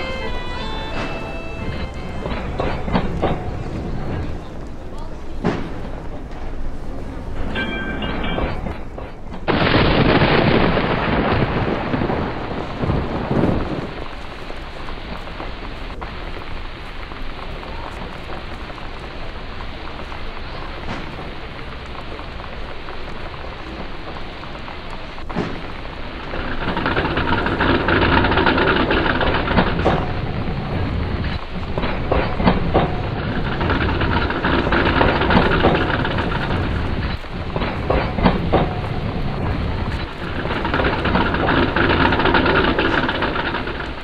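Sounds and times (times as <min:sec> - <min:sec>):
low rumble: 0:00.0 - 0:44.0
sharp knocks: 0:05.3 - 0:06.5, 0:20.6 - 0:44.0
rain on a hard surface: 0:09.4 - 0:44.0.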